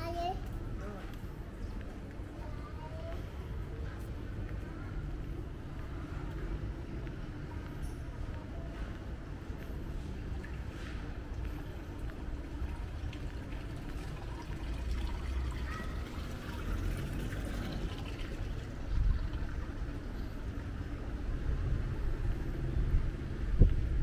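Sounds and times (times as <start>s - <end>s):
distant traffic rumble: 0.0s - 24.0s
wind buffeting microphone: 21.4s - 24.0s.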